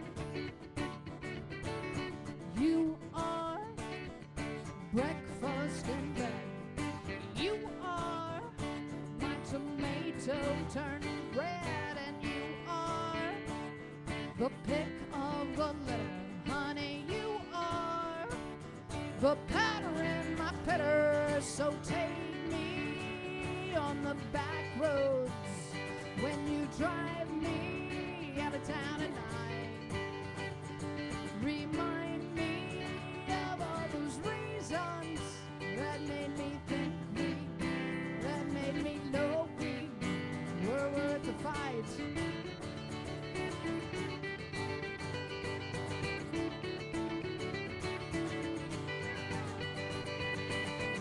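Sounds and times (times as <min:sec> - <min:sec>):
acoustic guitar: 0:00.0 - 0:51.0
person singing: 0:00.0 - 0:51.0.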